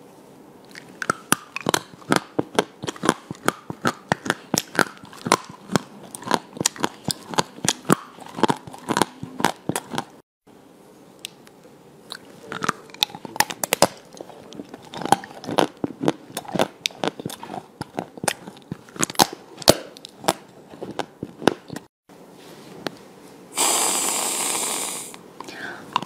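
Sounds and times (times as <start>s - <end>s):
crunching frozen sweets: 0.7s - 10.2s, 12.1s - 21.8s
whipped cream can hissing: 23.5s - 25.2s.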